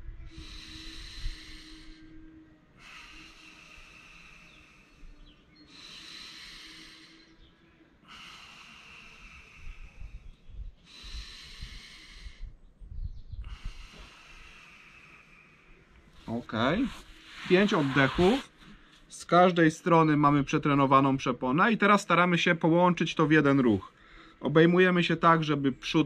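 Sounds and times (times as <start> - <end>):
man breathing deeply: 0.1 - 19.1, 23.9 - 24.4.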